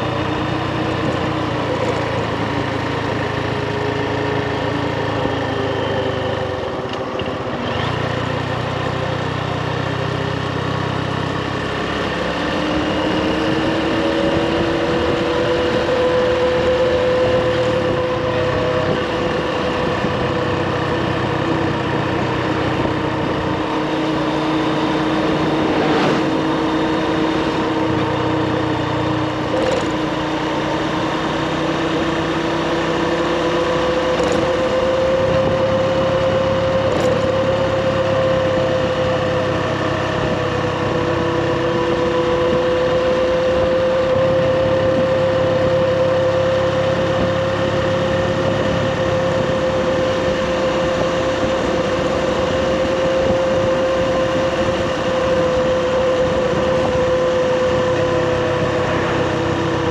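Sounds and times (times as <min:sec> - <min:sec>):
motorbike engine running: 0:00.0 - 0:59.9
rushing noise: 0:23.6 - 0:28.1.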